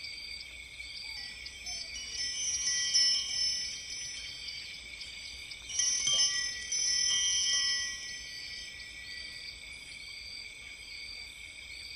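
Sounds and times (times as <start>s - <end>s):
high metal chimes ringing: 1.4s - 10.0s.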